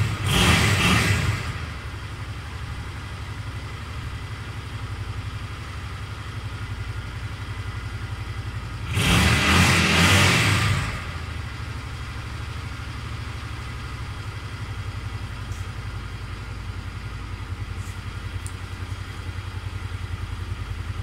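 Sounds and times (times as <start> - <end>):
motorcycle engine idling: 0.0 - 8.9, 11.0 - 21.0.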